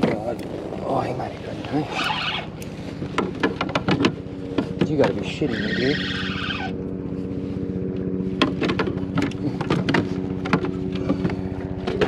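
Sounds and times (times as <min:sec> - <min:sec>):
boat engine droning: 0:00.0 - 0:12.0
sharp knocks and clicks: 0:03.0 - 0:05.2, 0:08.4 - 0:12.0.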